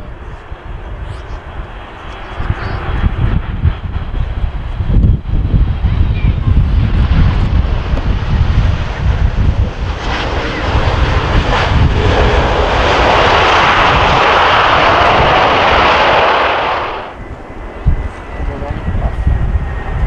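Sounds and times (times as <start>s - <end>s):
jet engine roar: 0.0s - 20.0s
wind on microphone: 0.0s - 20.0s.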